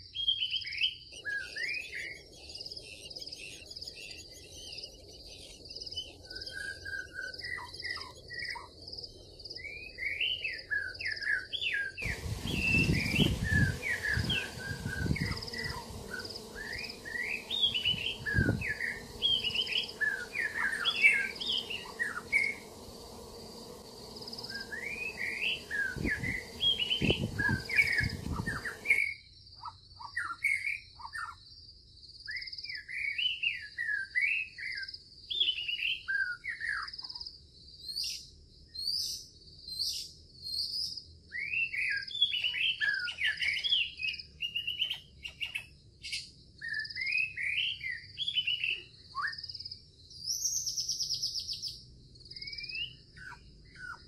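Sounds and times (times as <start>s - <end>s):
songbirds chirping: 0.0s - 54.0s
buzzy bird trill: 11.8s - 29.2s
steady high-pitched hum: 12.0s - 29.1s.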